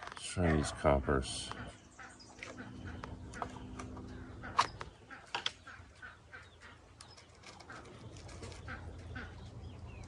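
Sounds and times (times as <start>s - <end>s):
birds calling: 0.0s - 10.0s
small ticks and rattles: 7.0s - 9.2s.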